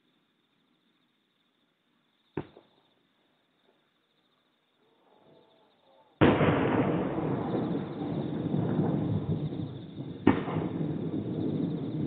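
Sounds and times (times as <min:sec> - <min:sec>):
firework shells booming: 0:06.2 - 0:12.0.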